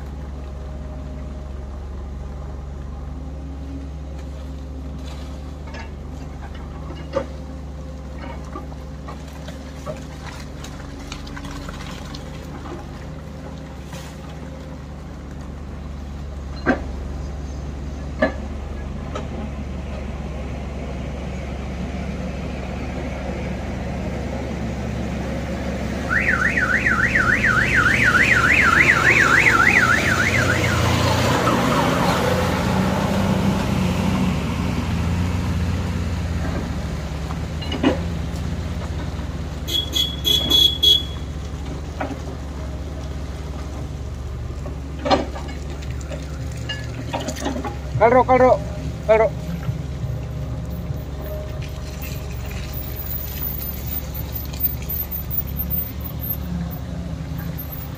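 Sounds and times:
diesel engines running: 0.0s - 57.9s
electronic warbling alarm: 26.1s - 30.8s.

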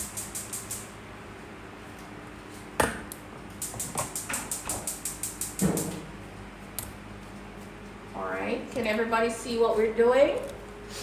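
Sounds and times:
stove igniter clicking rapidly: 0.0s - 0.9s, 3.6s - 6.0s.

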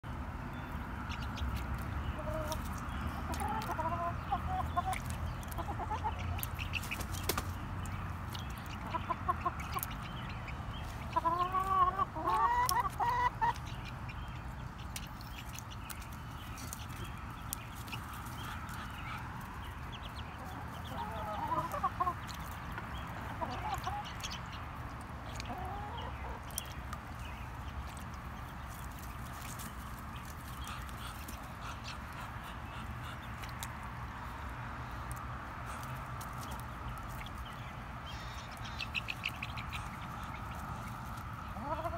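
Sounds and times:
hens clucking: 2.1s - 7.4s, 8.4s - 14.2s, 17.0s - 24.6s, 25.4s - 26.6s, 38.4s - 41.9s.

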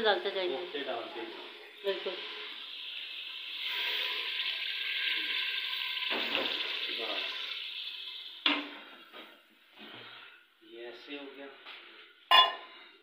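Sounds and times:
water sizzling in hot oil: 0.0s - 9.5s.

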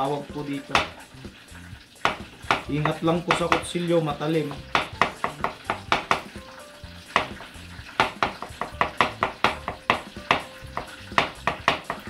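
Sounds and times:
knife chopping on plastic board: 0.7s - 1.0s, 2.0s - 3.7s, 4.6s - 6.4s, 7.2s - 7.4s, 8.0s - 12.0s.

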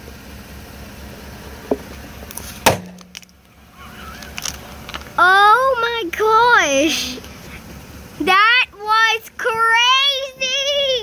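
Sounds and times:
car engine humming: 0.0s - 11.0s
plastic cup cracking under tyre: 2.3s - 3.4s, 4.2s - 5.1s.

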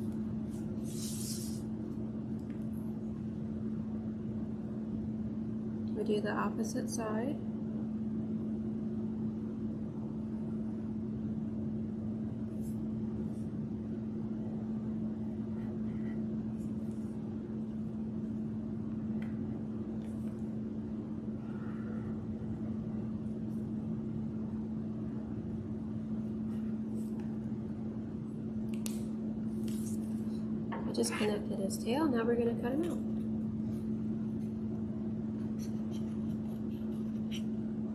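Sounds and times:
steady low hum: 0.0s - 37.9s
marker pen scratching on card: 35.4s - 37.6s.

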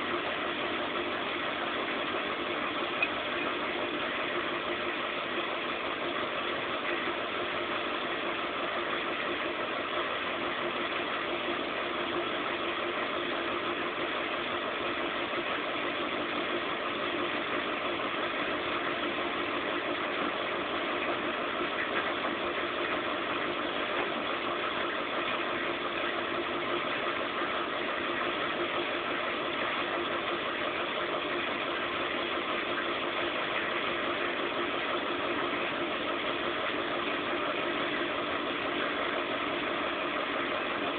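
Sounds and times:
washing machine humming: 0.0s - 40.9s.

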